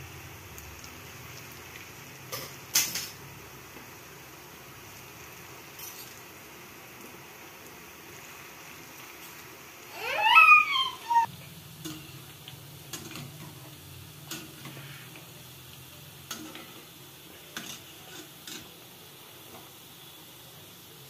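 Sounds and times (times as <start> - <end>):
food sizzling in hot oil: 0.0 - 21.0.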